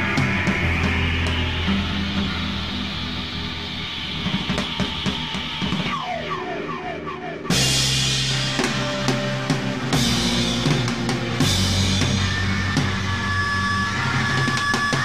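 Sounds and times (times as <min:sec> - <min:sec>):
low bass notes: 0:00.0 - 0:05.8, 0:07.2 - 0:15.0
rock drum kit: 0:00.0 - 0:06.8, 0:07.5 - 0:15.0.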